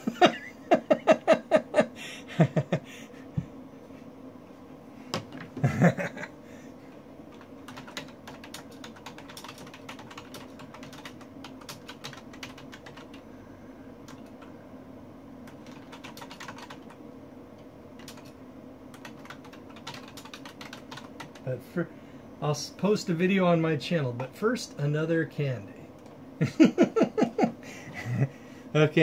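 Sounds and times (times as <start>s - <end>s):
faint hum: 0.0s - 29.0s
keyboard typing: 7.3s - 13.2s, 14.1s - 14.5s, 15.4s - 17.0s, 18.0s - 21.5s.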